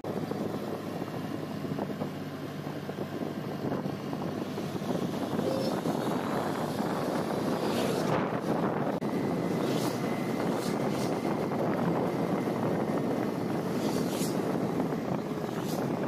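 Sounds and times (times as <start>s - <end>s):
vehicle engine and road noise: 0.0s - 16.0s
vehicle rushing past: 4.4s - 11.2s.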